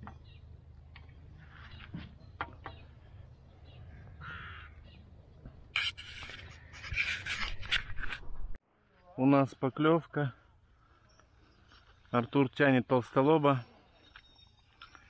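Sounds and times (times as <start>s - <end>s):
harsh cawing bird calls: 2.6s - 5.1s.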